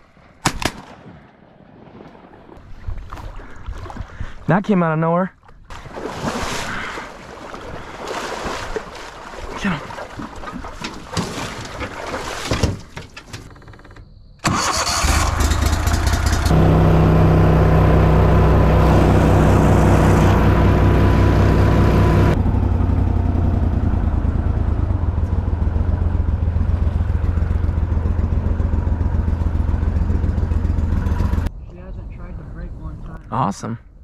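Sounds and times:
rustling and knocks: 10.7 - 13.8
small boat motor running: 15.4 - 31.5.

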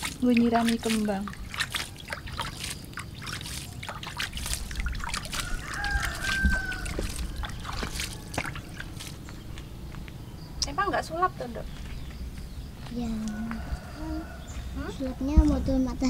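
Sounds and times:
water splashing onto soil: 0.0 - 9.8.

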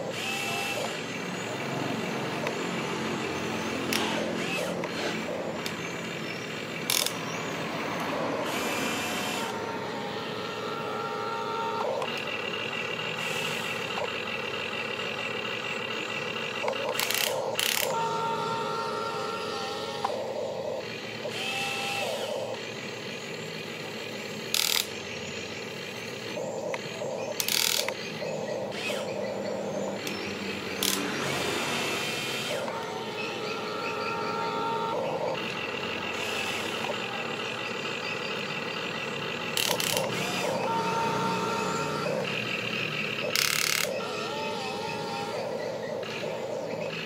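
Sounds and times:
gear chatter: 0.0 - 47.0
toy excavator motors whining: 0.0 - 47.0
sharp clicks: 3.7 - 5.8, 6.8 - 7.4, 16.6 - 18.0, 24.5 - 25.0, 26.7 - 29.2, 29.9 - 31.4, 39.4 - 40.7, 42.1 - 44.0.

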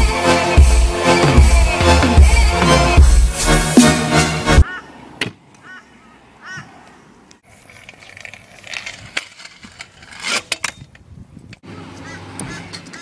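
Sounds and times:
bird calls: 4.6 - 7.4, 11.7 - 13.0
scooter wheels rolling on concrete: 5.4 - 13.0
scooter clacking on ground: 7.3 - 13.0.

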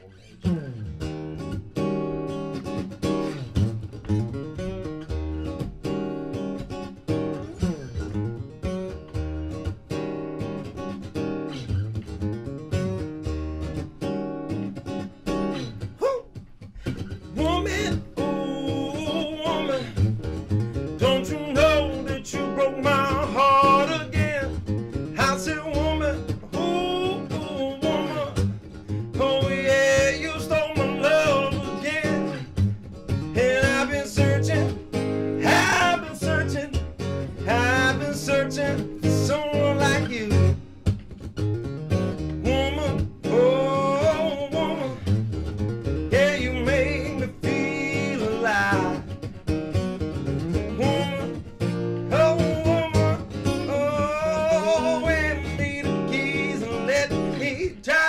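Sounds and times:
acoustic guitar: 0.0 - 58.0
man singing blues: 15.3 - 40.9, 41.9 - 58.0.

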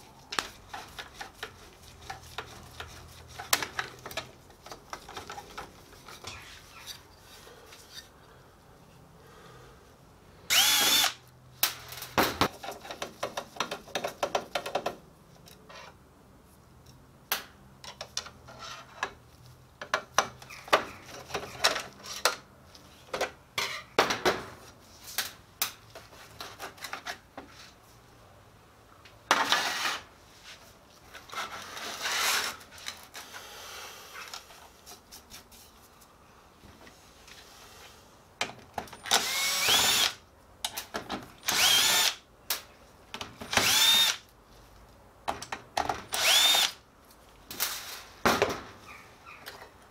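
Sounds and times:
cordless drill whirring: 10.5 - 11.2, 39.1 - 40.2, 41.5 - 42.2, 43.6 - 44.2, 46.2 - 46.8.

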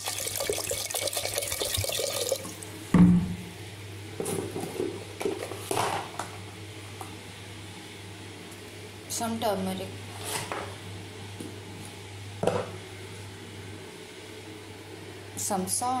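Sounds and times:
water poured into pot: 0.0 - 2.7
knocks on pot: 3.0 - 3.4.

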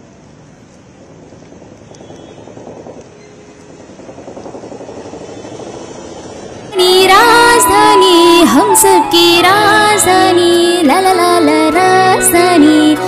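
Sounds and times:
traffic hiss on wet street: 0.0 - 6.8.

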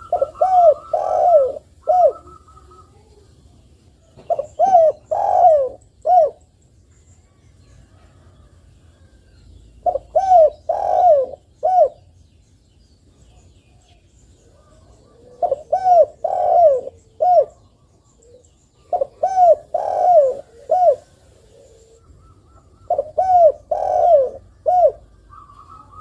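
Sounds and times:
dove cooing: 0.0 - 3.3, 4.0 - 6.4, 9.8 - 12.1, 14.5 - 26.0.

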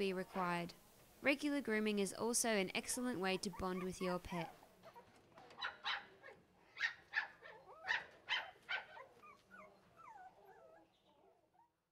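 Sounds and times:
puppies whimpering: 3.2 - 5.9, 6.8 - 11.8
puppies yipping: 3.3 - 11.7.

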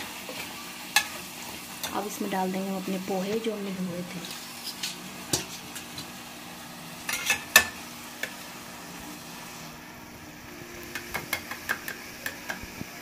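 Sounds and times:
low sizzling: 0.0 - 13.0.

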